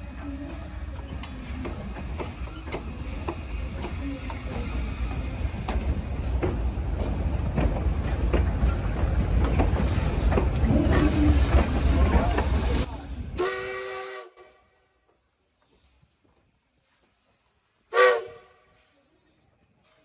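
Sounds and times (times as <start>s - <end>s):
steam locomotives rumbling past: 0.0s - 20.0s
wheels clanking and knocking: 0.4s - 12.9s.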